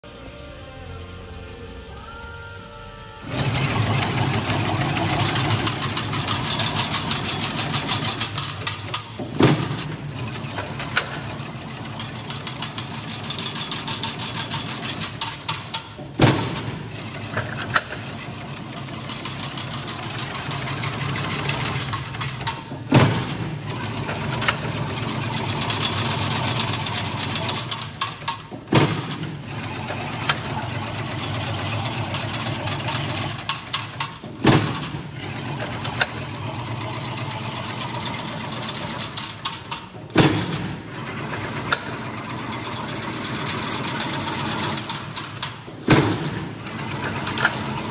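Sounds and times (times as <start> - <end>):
fence weaving machine clattering: 3.3 - 47.9
loud sharp metal clank: 15.6 - 18.0, 39.8 - 40.9, 44.9 - 46.7.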